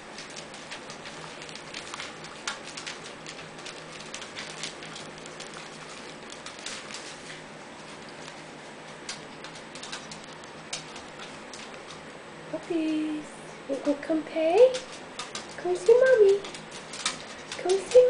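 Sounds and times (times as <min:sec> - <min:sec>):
puppies scrabbling on newspaper: 0:00.0 - 0:18.0
small clicks and taps: 0:14.7 - 0:18.0.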